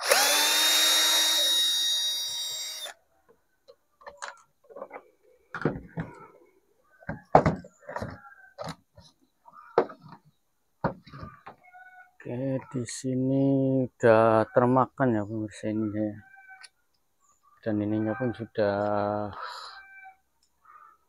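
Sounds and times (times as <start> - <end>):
cordless drill running: 0.0 - 3.0.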